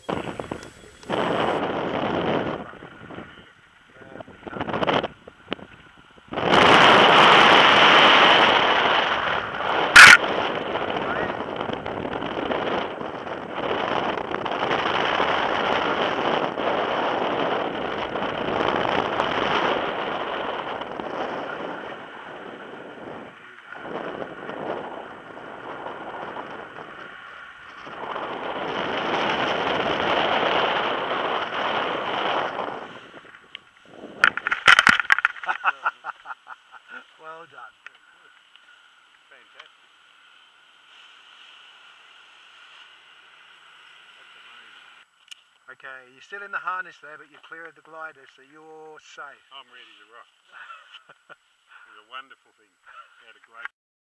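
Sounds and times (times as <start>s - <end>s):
wind rushing over microphone: 0.0s - 36.3s.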